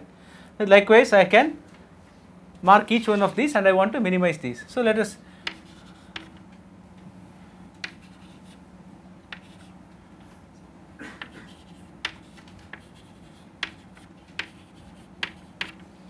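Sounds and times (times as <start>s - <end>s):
steady low hum: 0.0s - 16.0s
chalk tapping and scraping: 5.4s - 6.5s, 7.8s - 8.6s, 9.3s - 9.8s, 11.2s - 15.9s.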